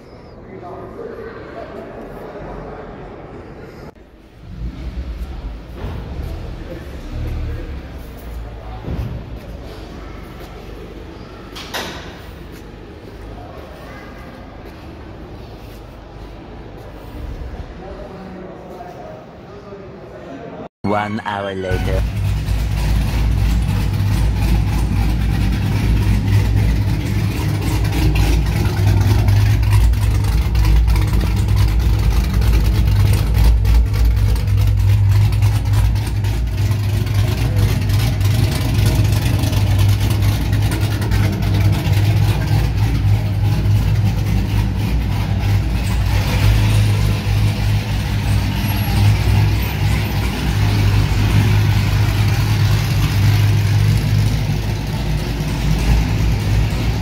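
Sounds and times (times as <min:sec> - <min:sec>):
car engine idling: 0:03.9 - 0:13.9, 0:21.7 - 0:57.0.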